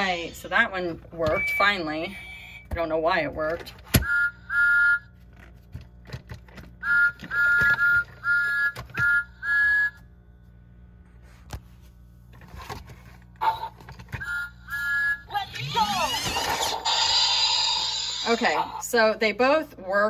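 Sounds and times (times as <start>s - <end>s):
toy train electronic whistle: 4.0s - 5.1s, 6.8s - 10.0s, 14.1s - 16.1s.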